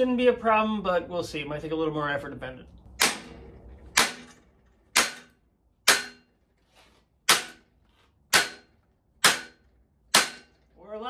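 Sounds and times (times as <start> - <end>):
mallet striking sheet steel: 2.9 - 6.3, 7.2 - 7.7, 8.3 - 10.6.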